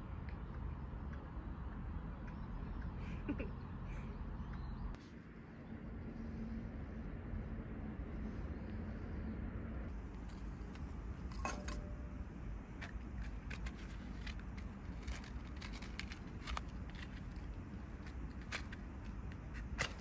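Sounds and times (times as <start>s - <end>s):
low background rumble: 0.0s - 20.0s
kindling clinking in metal fire pit: 10.2s - 12.2s.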